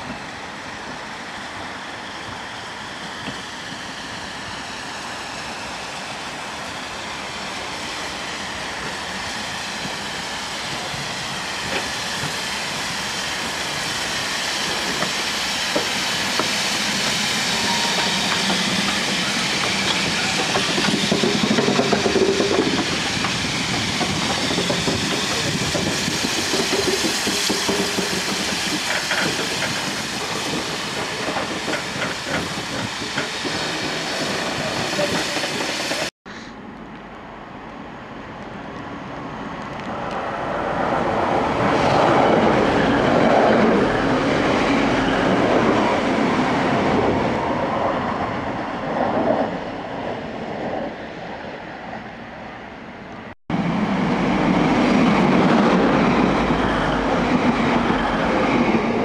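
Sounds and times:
diesel train approaching: 0.0 - 59.0
steam locomotive hissing: 0.1 - 36.6.

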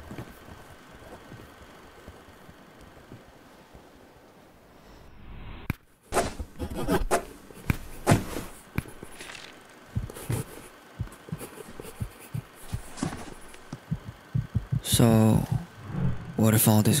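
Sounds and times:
soft low thumps: 9.9 - 16.4.

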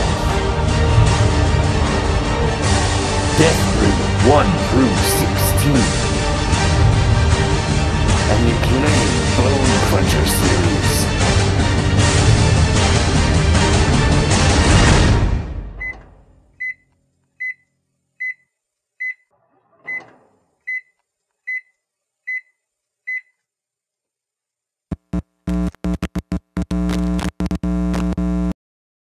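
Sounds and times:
music: 0.0 - 16.0
microwave oven beeps: 15.8 - 19.3, 20.7 - 21.7, 22.3 - 22.5
electric buzzing hum: 24.9 - 28.6.

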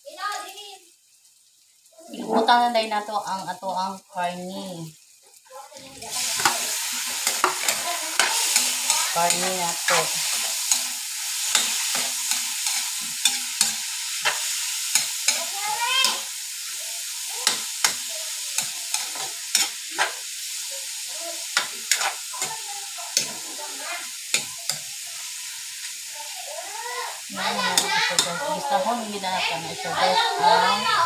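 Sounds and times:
meat sizzling in a wok: 0.0 - 31.0
metal utensil scraping pan: 6.0 - 20.5, 21.4 - 25.0, 27.4 - 30.8.

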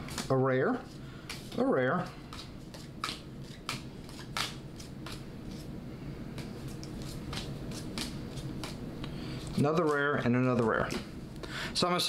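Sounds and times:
cards flicking: 2.3 - 5.6, 6.4 - 8.8.

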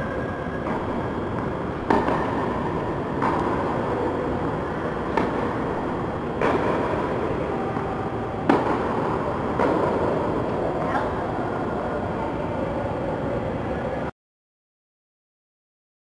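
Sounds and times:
steady background hiss: 0.0 - 14.1
racket hitting tennis ball: 0.6 - 10.6.

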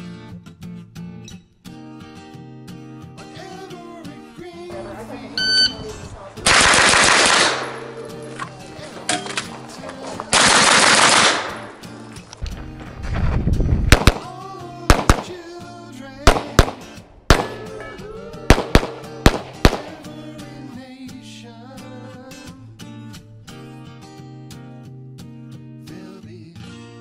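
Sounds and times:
guitar music: 0.0 - 27.0
rapid rifle gunfire: 6.4 - 7.8, 10.3 - 11.8, 13.9 - 14.3, 14.9 - 15.4, 16.3 - 17.6, 18.5 - 20.1
pistol shots: 6.4 - 8.0, 10.3 - 11.8, 13.9 - 15.4, 16.3 - 17.8, 18.5 - 20.2.

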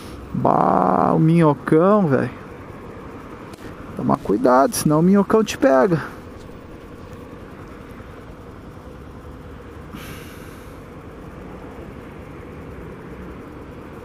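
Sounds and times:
car passing hiss: 0.0 - 0.5, 6.9 - 14.0
traffic rumble: 0.0 - 14.0.

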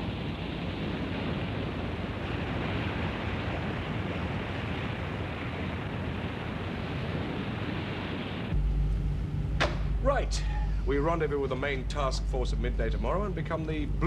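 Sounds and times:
water surging along hull: 0.0 - 8.6
wind: 0.0 - 14.0.

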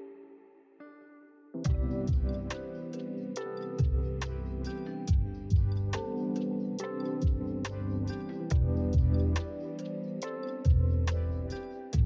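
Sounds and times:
electronic beat with heavy bass: 1.7 - 2.6, 3.8 - 4.5, 5.1 - 6.0, 7.2 - 9.9, 10.7 - 12.0.

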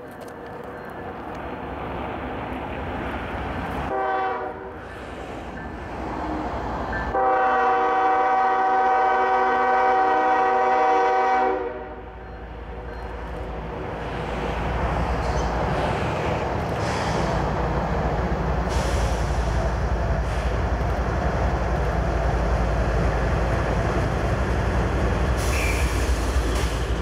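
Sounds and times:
train rumble: 0.0 - 27.0
locomotive horn blasts: 3.9 - 4.8, 7.1 - 12.1.

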